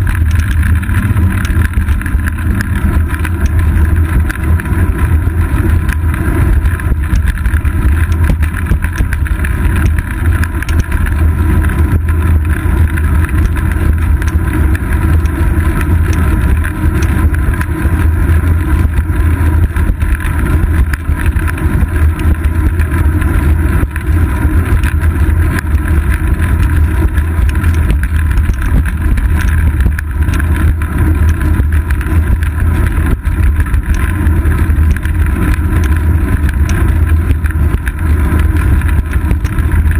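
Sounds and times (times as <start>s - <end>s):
bicycle road rumble: 0.0s - 39.9s.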